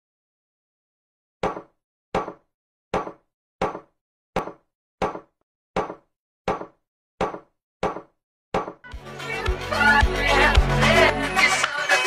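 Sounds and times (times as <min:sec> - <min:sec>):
sharp knocks: 0:01.4 - 0:08.8.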